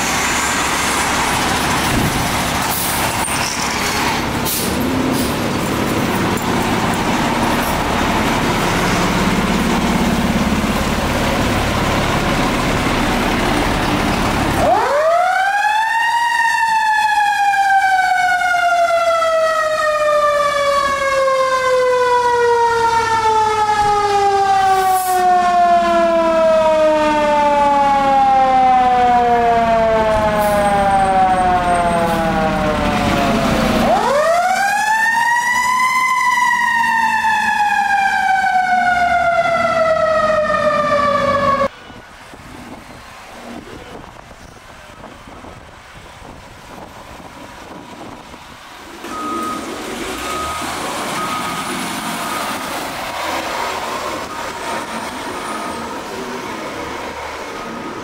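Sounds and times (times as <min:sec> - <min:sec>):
diesel engine rumbling: 0:00.0 - 0:58.0
mechanical siren wailing: 0:14.6 - 0:41.8.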